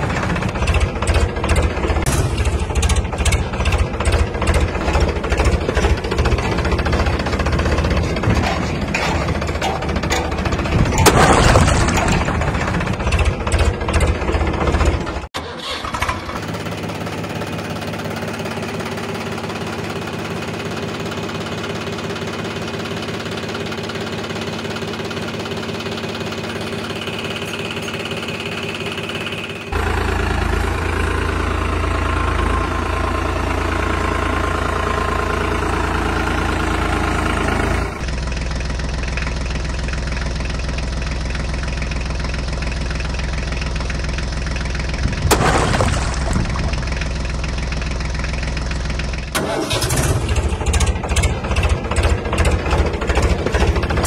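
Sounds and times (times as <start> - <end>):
diesel tractor engine idling: 0.0 - 54.0
water splashing: 45.0 - 47.0.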